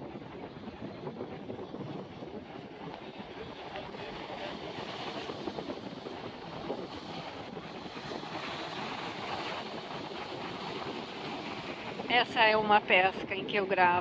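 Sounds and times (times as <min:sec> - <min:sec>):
wind buffeting microphone: 0:00.0 - 0:14.0
surf breaking against rocks: 0:03.0 - 0:13.9.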